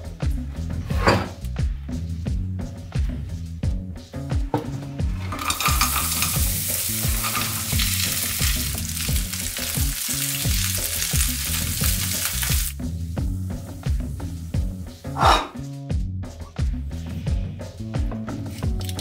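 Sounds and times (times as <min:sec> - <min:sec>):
wooden spoon stirring: 0:05.1 - 0:08.0
bread frying in hot fat: 0:05.1 - 0:14.9.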